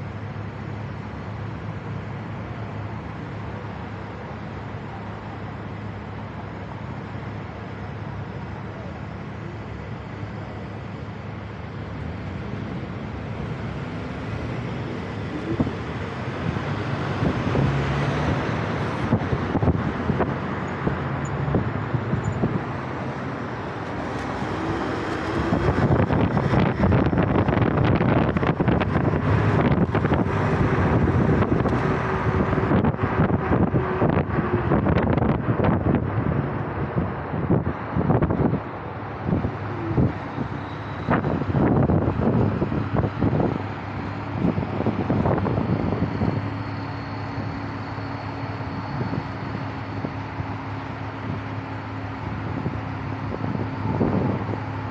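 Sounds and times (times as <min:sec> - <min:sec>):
road traffic noise: 0:00.0 - 0:54.9
vehicle pulling away: 0:10.5 - 0:54.9
wind buffeting microphone: 0:12.4 - 0:54.9.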